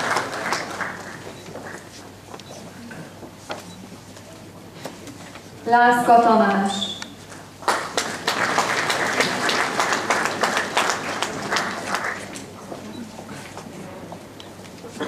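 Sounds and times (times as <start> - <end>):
audience clapping: 0.0 - 1.9, 7.4 - 12.9.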